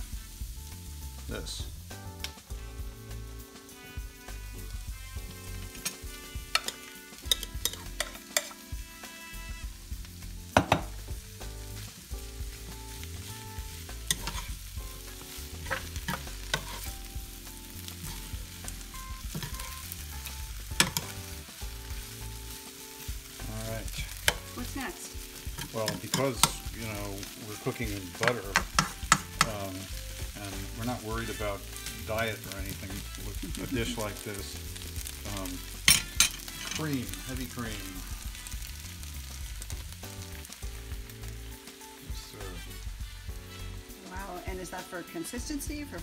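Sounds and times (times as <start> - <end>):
food sizzling in a pan: 0.0 - 46.0
spoon knocking against pan: 5.8 - 8.6, 10.5 - 11.0, 28.2 - 29.6
potatoes sliding into skillet: 11.6 - 41.4.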